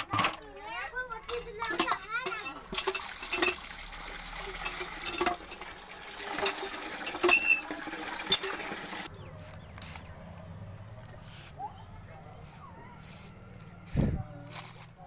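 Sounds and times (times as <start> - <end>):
hand pump handle clanking: 0.0 - 9.1
water gushing into plastic bucket: 1.7 - 9.1.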